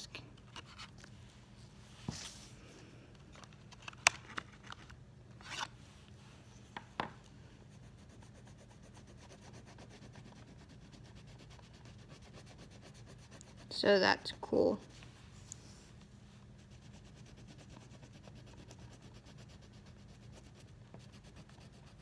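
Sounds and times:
pencil strokes scratching on paper: 7.7s - 15.1s, 16.6s - 22.0s.

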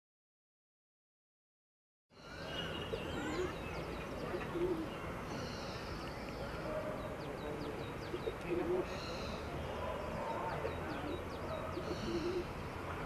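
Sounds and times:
birds chirping: 2.1s - 13.0s
steady background noise: 2.1s - 13.0s
low cooing bird: 2.2s - 12.6s.

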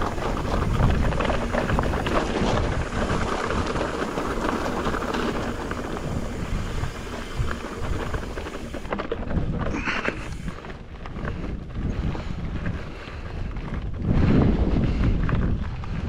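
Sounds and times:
bike tyres crunching over gravel: 0.0s - 16.0s
wind buffeting microphone: 0.0s - 16.0s.

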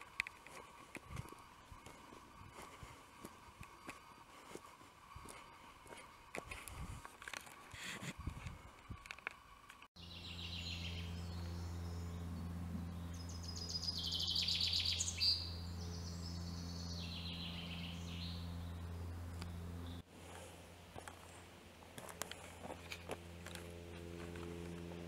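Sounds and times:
steady low hum: 0.0s - 25.0s
songbirds singing: 10.0s - 20.0s.

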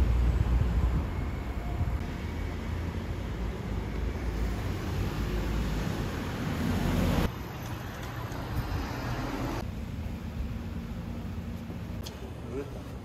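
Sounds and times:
cars driving past: 0.0s - 9.7s
street noise: 0.0s - 13.0s.

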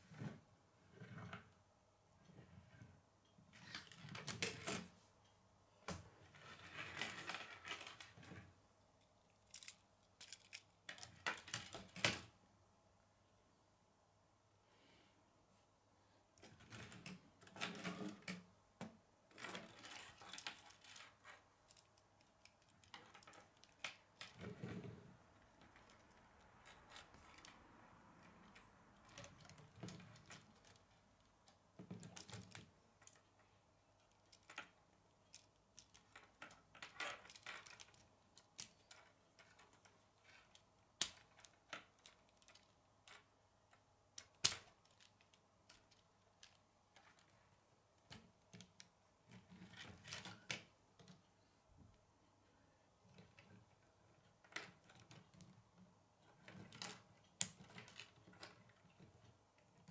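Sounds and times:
plastic pieces clicking and rattling: 9.3s - 12.3s, 19.3s - 24.6s, 28.4s - 33.3s, 34.0s - 43.3s, 44.2s - 47.4s, 56.3s - 59.1s
plastic pieces snapping together: 41.0s - 42.7s.

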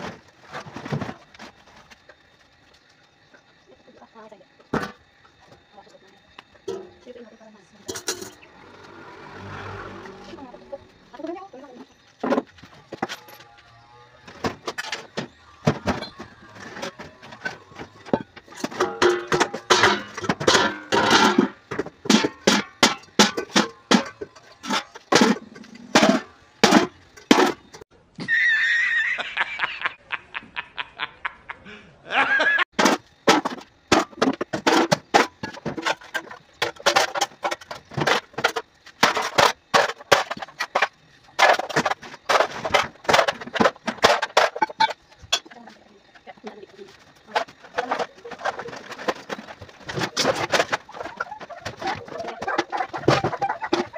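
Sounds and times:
man laughing: 28.2s - 32.7s.

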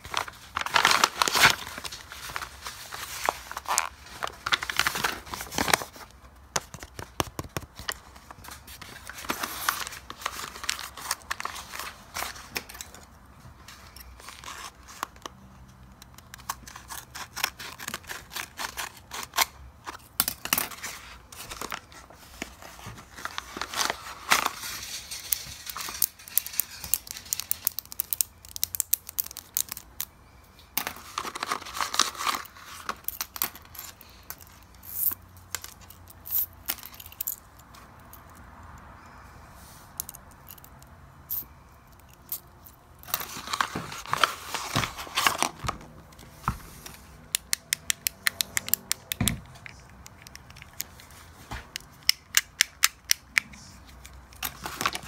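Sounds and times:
paper bag crinkling: 0.0s - 6.1s.

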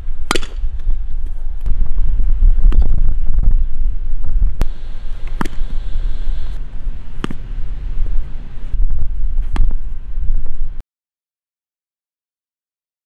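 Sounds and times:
wind buffeting microphone: 0.0s - 10.8s
bat hitting ball: 0.2s - 0.7s, 4.6s - 6.3s, 7.0s - 8.7s.

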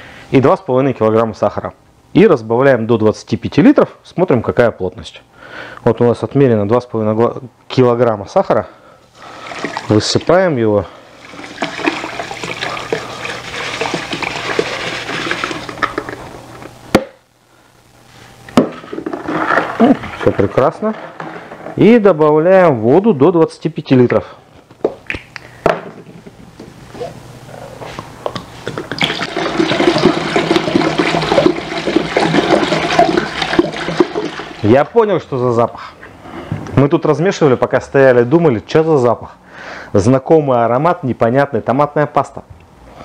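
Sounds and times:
sugar pouring into bucket: 9.2s - 10.2s, 11.2s - 16.0s, 29.0s - 34.8s
air bubbles gulping into bottle: 11.3s - 16.1s, 28.4s - 34.6s
water glugging from bottle: 11.3s - 16.2s, 28.6s - 34.6s
plastic jug knocking bucket: 11.4s - 16.2s, 18.6s - 21.8s, 28.9s - 34.6s.

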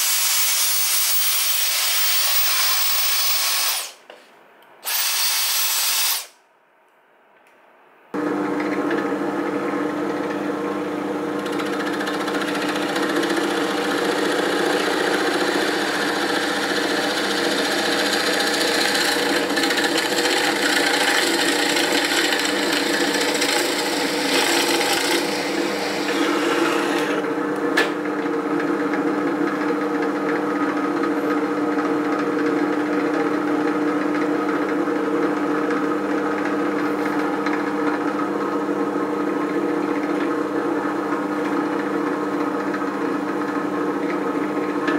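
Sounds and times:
drill bit boring into wood: 0.0s - 4.0s, 4.8s - 6.3s, 11.4s - 27.2s
drill press motor running: 4.8s - 6.3s, 8.2s - 28.8s.

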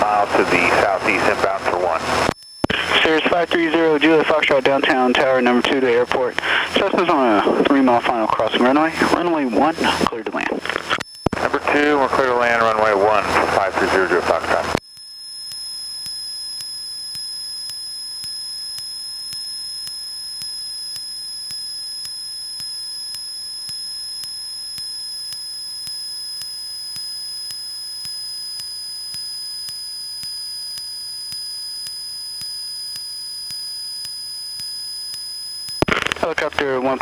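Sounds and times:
faint tick: 14.8s - 35.9s.

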